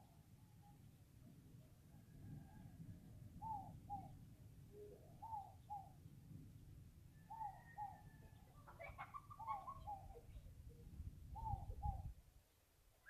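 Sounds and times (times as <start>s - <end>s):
dove cooing: 3.4s - 6.0s, 7.3s - 10.5s, 11.3s - 12.1s.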